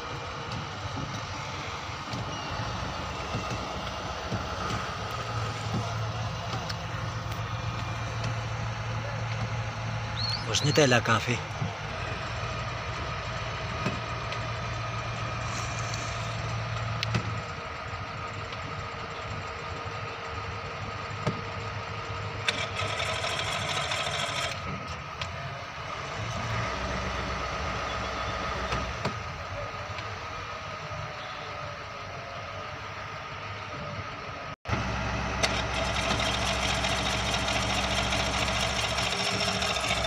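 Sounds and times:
diesel engines running: 0.0 - 40.0
hiss: 15.4 - 16.4.

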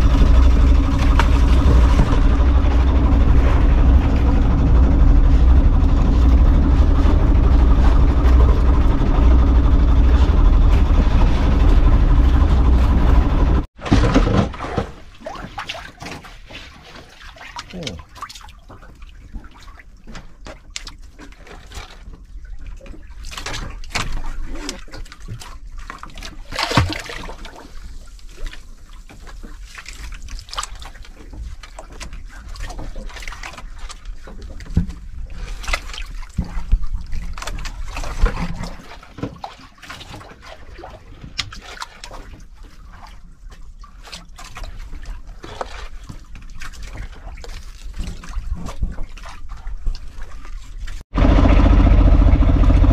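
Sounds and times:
water splashing against boat hull: 0.0 - 52.9
knocks on boat: 0.3 - 3.1.

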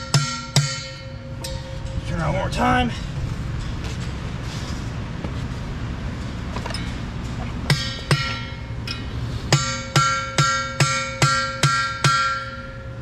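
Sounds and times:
sledgehammer blows on metal: 0.0 - 2.1, 7.7 - 12.8
metal hub ringing: 0.0 - 4.4, 6.2 - 13.0.

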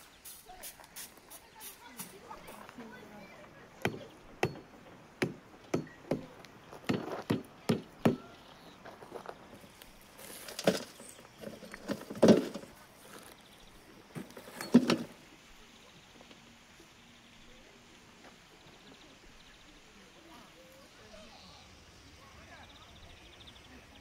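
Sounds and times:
hatchet knocking on clay crust: 3.8 - 8.3.

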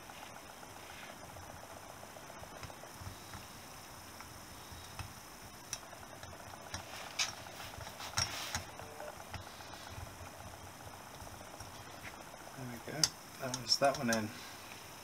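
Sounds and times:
light metal clicks and taps: 13.0 - 14.3.

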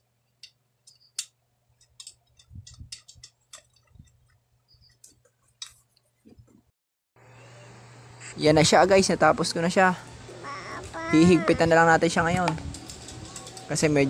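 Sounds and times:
metal spokes clicking: 0.3 - 5.8, 12.1 - 14.0.

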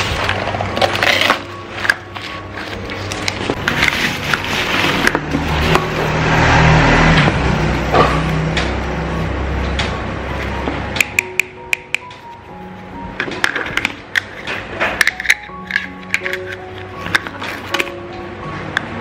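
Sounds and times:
background music: 0.0 - 19.0
cardboard rustling and crinkling: 2.1 - 5.2.

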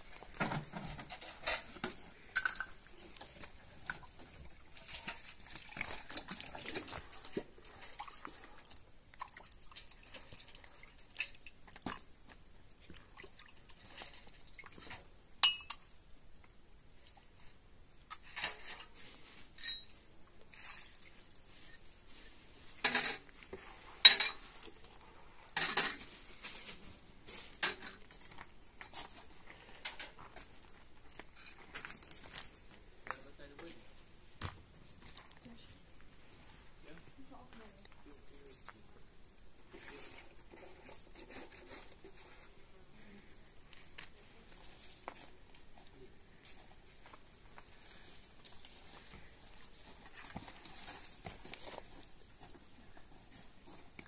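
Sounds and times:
pots and dishes clinking: 0.4 - 2.8, 15.4 - 15.8, 19.6 - 19.9, 24.0 - 24.5.

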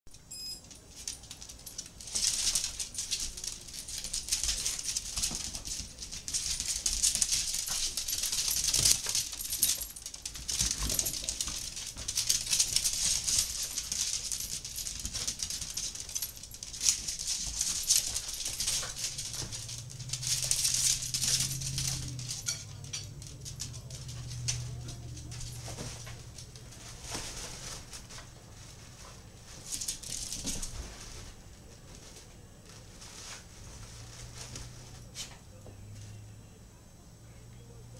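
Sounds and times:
dog nails clicking on hardwood floor: 0.6 - 28.3, 29.5 - 31.3.

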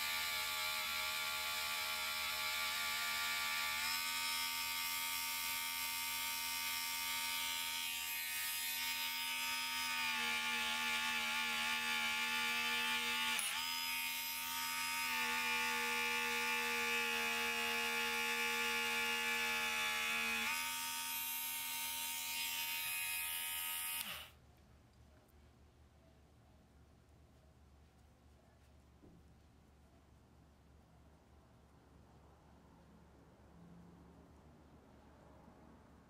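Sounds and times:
rotary tool whine: 8.4 - 24.3.

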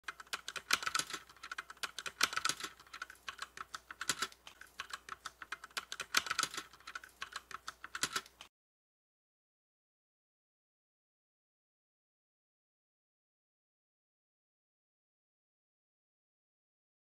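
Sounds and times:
computer keyboard typing: 0.0 - 8.5.

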